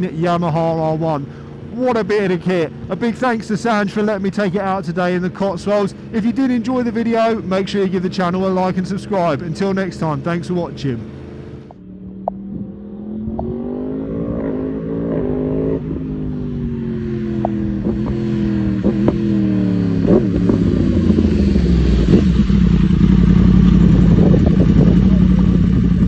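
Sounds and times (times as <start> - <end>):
motorcycle engine revving: 11.0 - 26.0.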